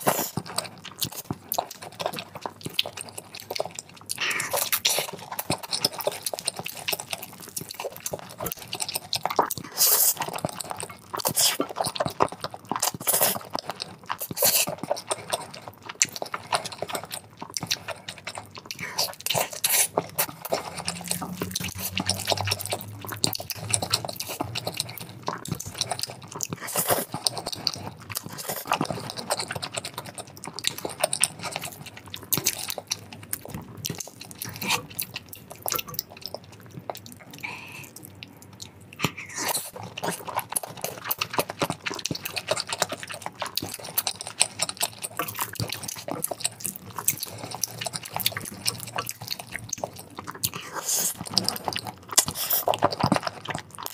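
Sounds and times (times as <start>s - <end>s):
slurping noodles: 0.0s - 1.3s, 16.1s - 30.0s
moist chewing and lip smacks: 0.0s - 53.9s.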